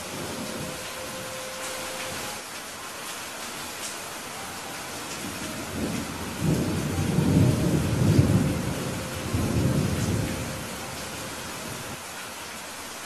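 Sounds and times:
steady rain: 0.0 - 13.0
thunder rolling: 5.2 - 12.0.

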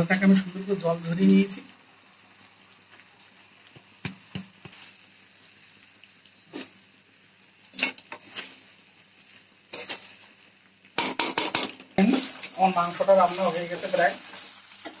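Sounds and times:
rice clicking into pan: 2.9 - 5.5, 10.8 - 13.0
metal spatula scraping metal pan: 7.8 - 8.6, 9.7 - 10.3.

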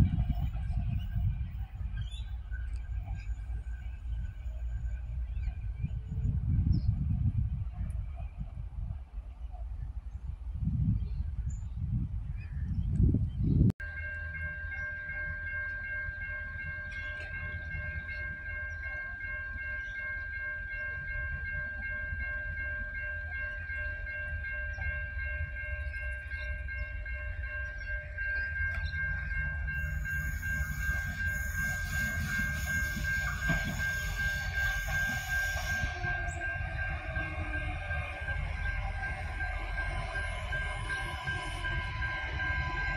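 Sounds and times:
diesel railcar rumble: 0.0 - 42.9
steady high-pitched tone: 23.6 - 42.9
wheel and brake hiss: 29.9 - 36.0.

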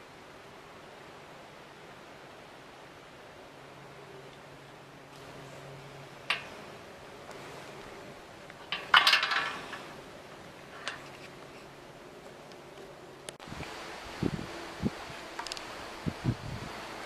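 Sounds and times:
clinking clatter: 8.6 - 9.9.

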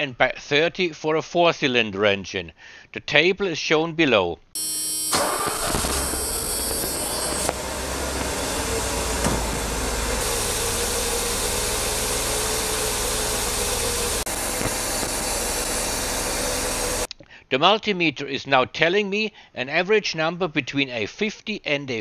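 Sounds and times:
car engine idling: 4.6 - 17.1.

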